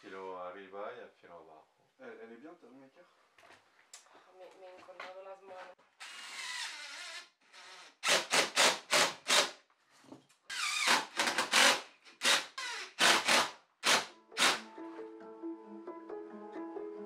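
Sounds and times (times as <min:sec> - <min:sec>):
cordless drill driving screws: 0:06.0 - 0:09.6, 0:10.5 - 0:14.6.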